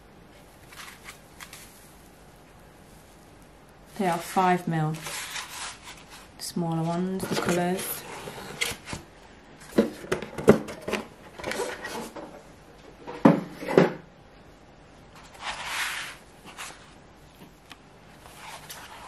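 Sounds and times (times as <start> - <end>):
scraping rustle: 3.9 - 9.0, 18.2 - 19.0.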